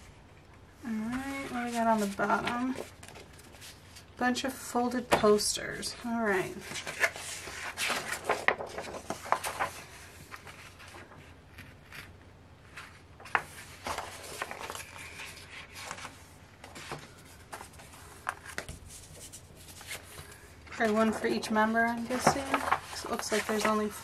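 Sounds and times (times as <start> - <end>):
paper rustling and crinkling: 0.9 - 4.1, 6.3 - 24.0.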